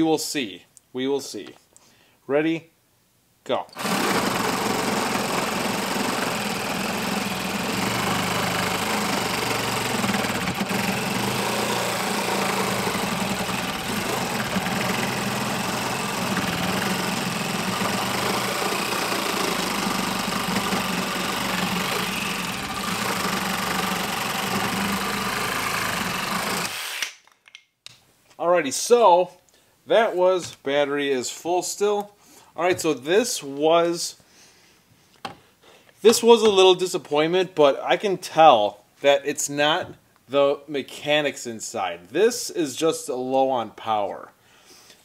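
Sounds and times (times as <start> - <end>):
reciprocating saw cutting wood: 3.8 - 27.2.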